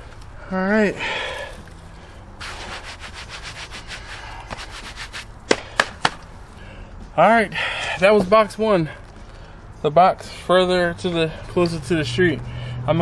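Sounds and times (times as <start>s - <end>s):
rustling and scraping: 1.2s - 6.5s
sharp knocks: 5.5s - 6.2s.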